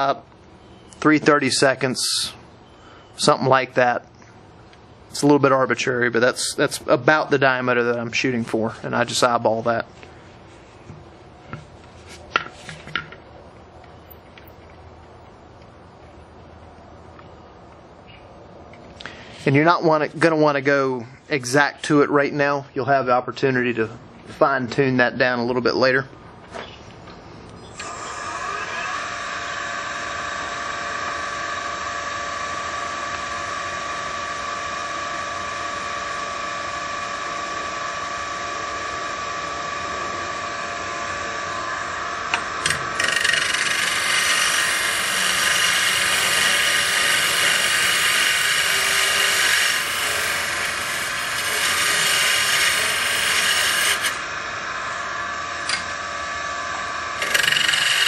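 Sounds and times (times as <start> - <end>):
wood lathe motor whine: 27.8 - 58.0
turning tool scraping wood: 42.6 - 54.2, 57.2 - 58.0.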